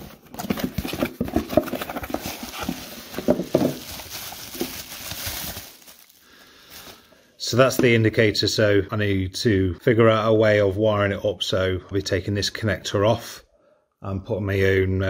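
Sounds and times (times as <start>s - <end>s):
plastic crinkling and rustling: 0.0s - 7.2s.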